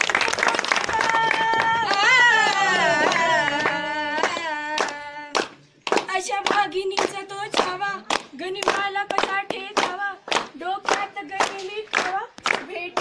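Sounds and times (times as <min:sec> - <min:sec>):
hand claps: 0:00.0 - 0:13.0
young women chanting: 0:00.8 - 0:05.5.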